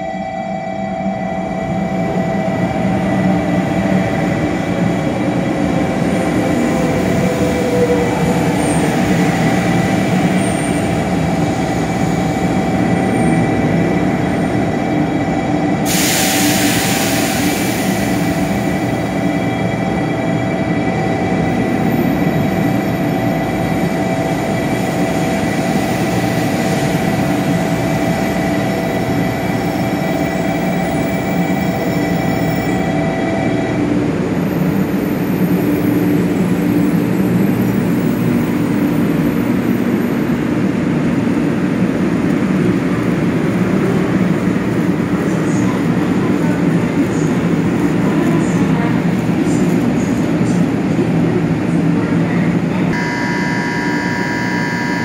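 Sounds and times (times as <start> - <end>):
train inverter whining tones: 0.0 - 36.9, 52.9 - 55.0
train running gear rumble: 1.8 - 53.0.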